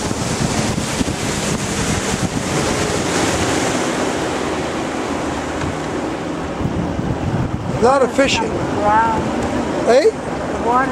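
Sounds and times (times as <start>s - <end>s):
outboard motor hum: 0.0s - 10.9s
water rushing past hull: 0.0s - 10.9s
wind noise on microphone: 0.0s - 10.9s.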